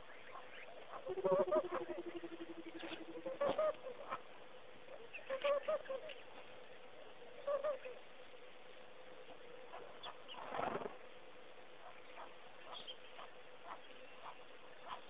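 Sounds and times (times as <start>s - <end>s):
dove-like cooing birds: 0.0s - 8.1s
faint steady hum: 0.0s - 15.0s.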